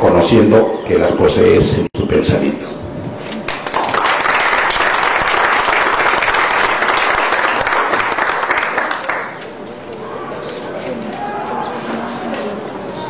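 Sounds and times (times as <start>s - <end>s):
audience applauding: 3.5s - 9.5s.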